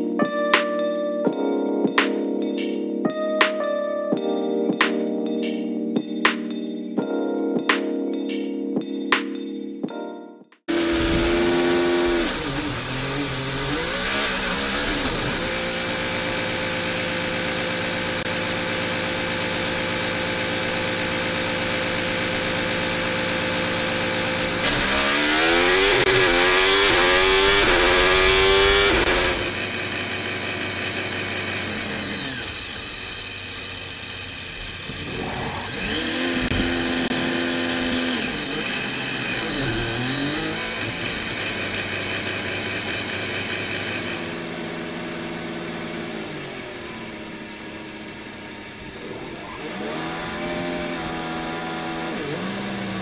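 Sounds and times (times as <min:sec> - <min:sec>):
racing car engine revving: 0:10.7 - 0:53.0.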